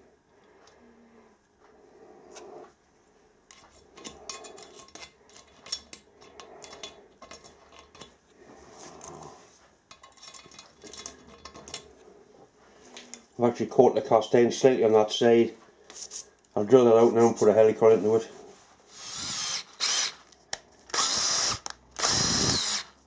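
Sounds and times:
metal clinks and scrapes: 3.5 - 8.2, 8.8 - 12.0.

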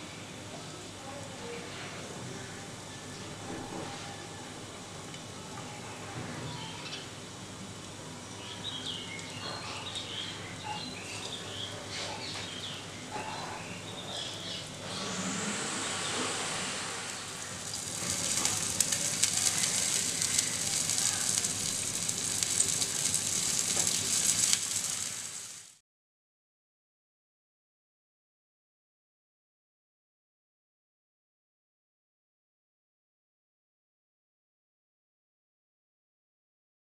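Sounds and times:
fish frying in oil: 7.1 - 25.8.

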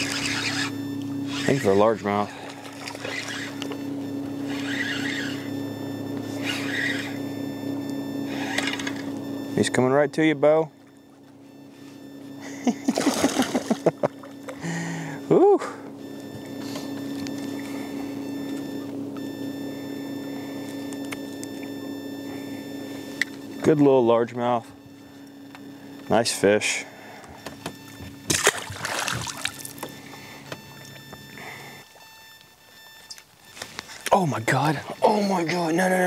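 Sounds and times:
fishing reel whirring bursts: 0.0 - 3.8, 4.4 - 5.6, 6.4 - 7.2, 8.3 - 9.0
trolling motor humming: 0.0 - 36.0.

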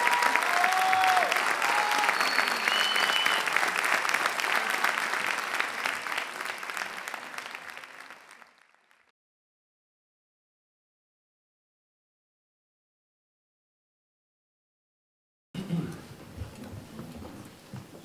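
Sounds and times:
audience applauding: 0.0 - 9.1
short high whistles: 1.9 - 3.5.

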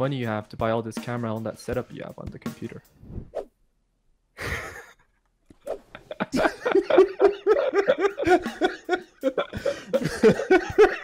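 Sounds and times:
men laughing heartily: 4.4 - 5.1, 5.9 - 11.0.

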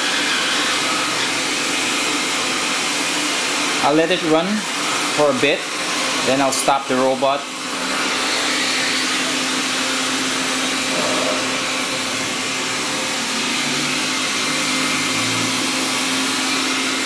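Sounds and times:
robot vacuum whirring: 7.6 - 17.0.

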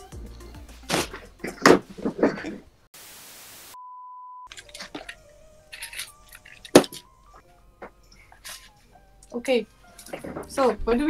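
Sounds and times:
tv static hiss: 3.0 - 3.8.

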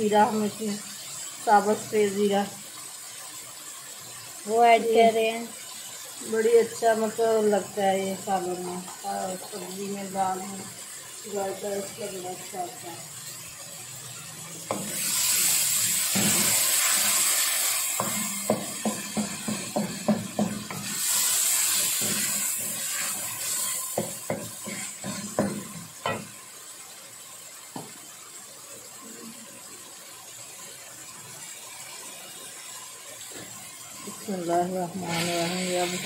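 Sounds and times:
food sizzling in a metal pan: 0.0 - 36.0
loud frying hiss: 0.0 - 36.0
wooden spoon knocking against pan: 18.0 - 20.9, 24.0 - 26.4.

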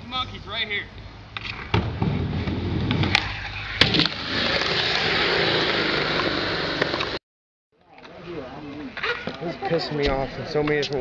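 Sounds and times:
skateboard wheels rolling on concrete: 1.3 - 7.2.

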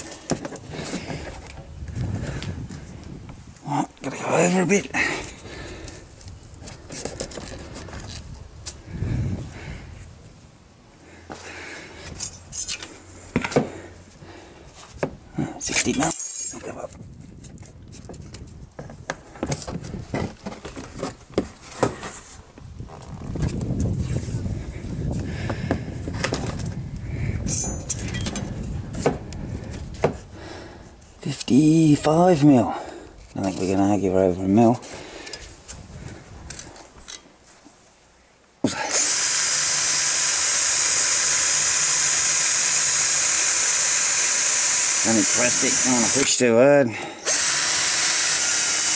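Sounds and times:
electric drill drilling plastic: 38.6 - 46.4, 47.2 - 48.9.

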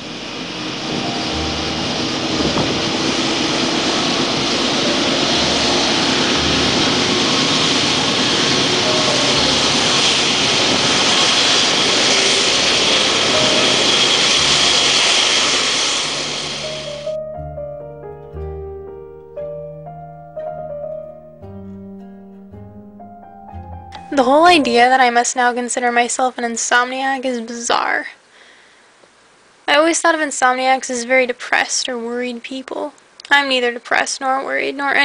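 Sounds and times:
freight train passing: 0.0 - 18.5.

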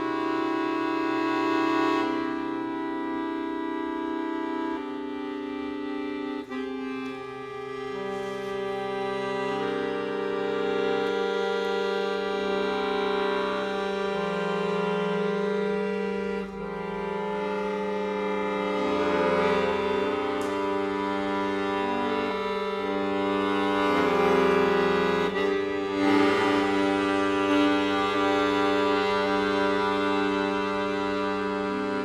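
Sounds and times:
accordion playing slow chords: 0.0 - 32.0.

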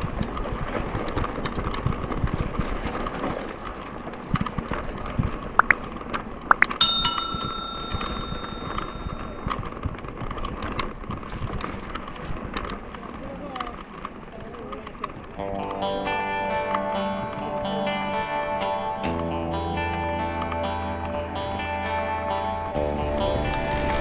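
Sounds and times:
bicycle bell ringing: 6.7 - 9.4.

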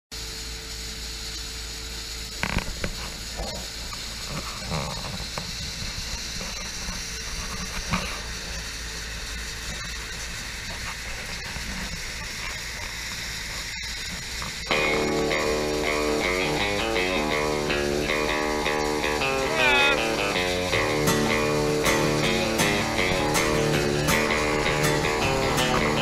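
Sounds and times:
outdoor background hiss and rumble: 0.2 - 26.0.

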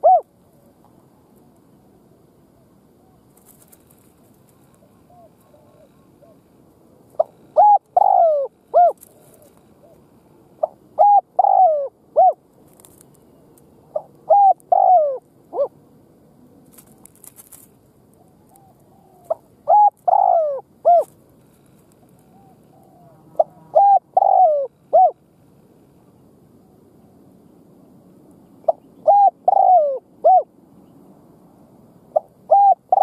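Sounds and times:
dove cooing: 0.0 - 0.3, 2.6 - 6.5, 7.1 - 13.1, 13.9 - 15.8, 18.2 - 21.2, 22.2 - 25.3, 28.6 - 30.5, 32.1 - 33.0.

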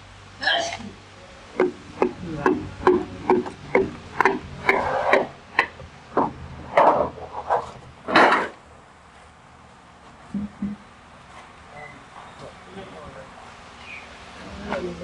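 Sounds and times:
scraping metal clanks: 2.8 - 8.6.

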